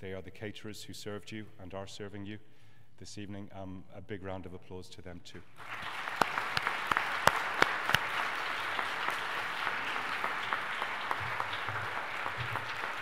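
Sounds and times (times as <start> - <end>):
audience applause: 5.6 - 13.0
sharp close claps: 5.6 - 13.0.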